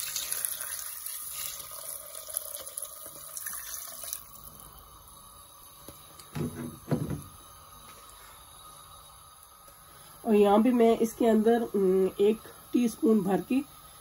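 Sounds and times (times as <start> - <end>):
water pouring into a pot: 0.0 - 6.2.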